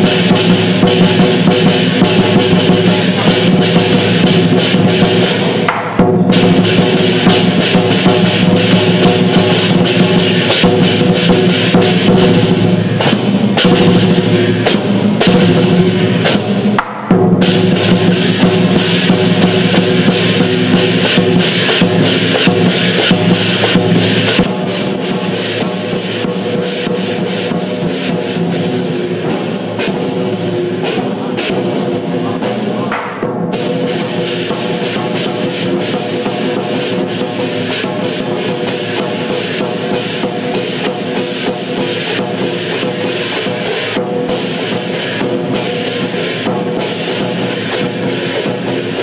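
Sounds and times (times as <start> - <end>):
cymbals clashing: 0.0 - 49.0
rapid drum beats: 0.0 - 49.0.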